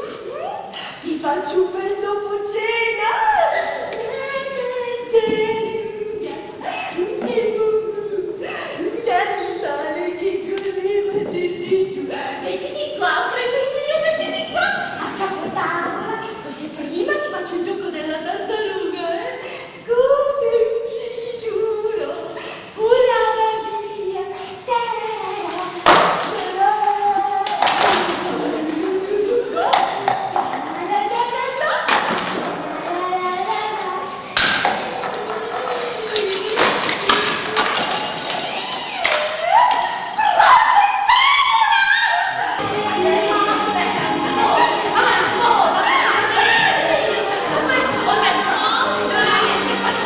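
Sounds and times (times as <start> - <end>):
woman singing: 0.0 - 31.9, 34.8 - 40.8, 42.5 - 50.0
music with pitched tones: 42.6 - 50.0.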